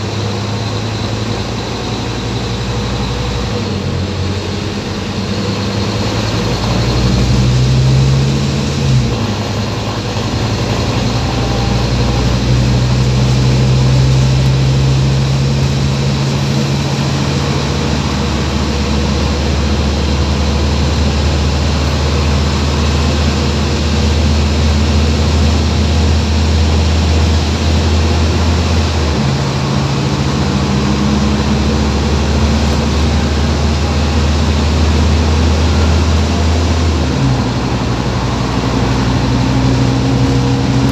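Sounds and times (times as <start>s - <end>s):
bus engine humming: 0.0s - 40.9s
ride noise: 0.0s - 40.9s.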